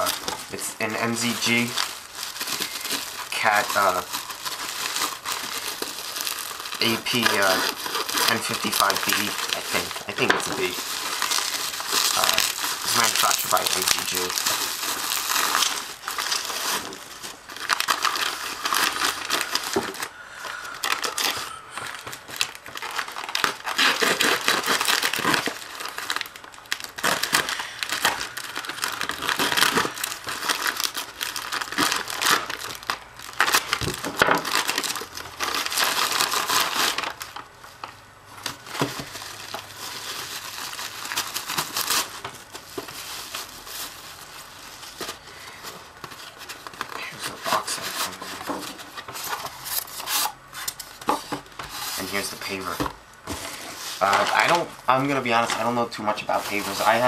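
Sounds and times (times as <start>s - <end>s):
plastic mailer crinkling: 0.0s - 57.0s
knife cutting plastic mailer: 22.4s - 26.2s.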